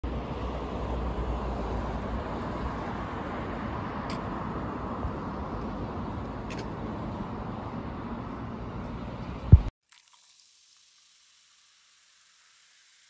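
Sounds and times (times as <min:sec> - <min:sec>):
distant road traffic: 0:00.0 - 0:09.7.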